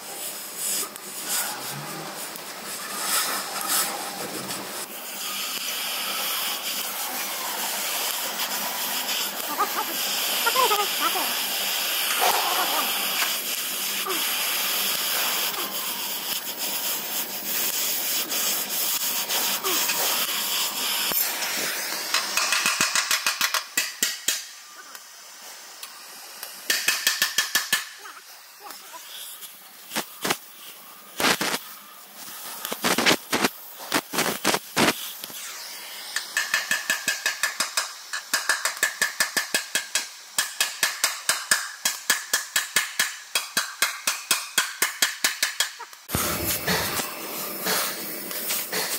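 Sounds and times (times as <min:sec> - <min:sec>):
torch flame hissing: 0:00.0 - 0:38.6, 0:46.0 - 0:48.9
hammer striking hot steel: 0:22.0 - 0:24.6, 0:26.4 - 0:28.1, 0:36.1 - 0:48.9.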